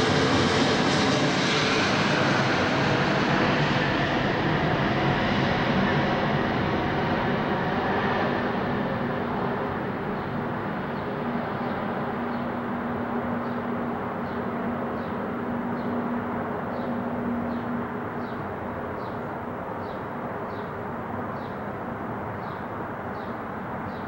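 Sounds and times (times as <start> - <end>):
jet airliner engine noise: 0.0 - 24.0.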